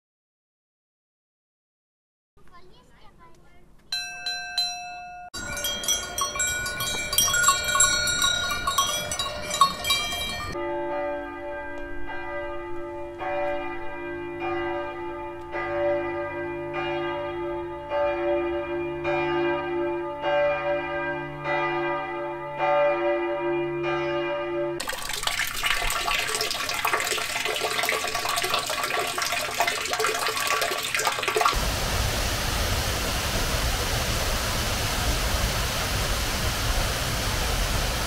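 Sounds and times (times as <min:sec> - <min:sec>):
many bells clanging: 0:03.9 - 0:31.5
church bells tolling: 0:04.0 - 0:24.8.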